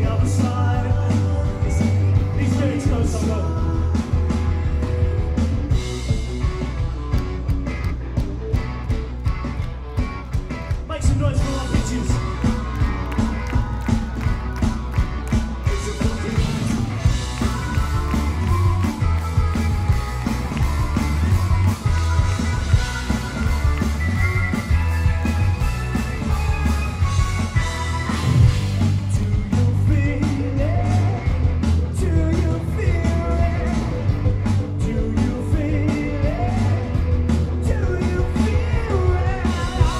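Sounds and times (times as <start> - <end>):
person singing: 0.0 - 5.0, 15.5 - 25.6, 27.7 - 39.9
bass guitar: 0.0 - 39.9
drum beat: 0.0 - 39.9
electric guitars: 0.0 - 39.9.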